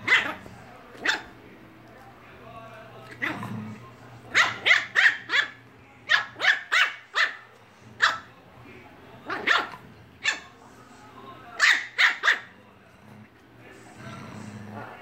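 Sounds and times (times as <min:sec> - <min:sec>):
dog barking: 0:00.0 - 0:00.4, 0:01.0 - 0:01.3, 0:04.3 - 0:08.3, 0:09.3 - 0:10.5, 0:11.6 - 0:12.5.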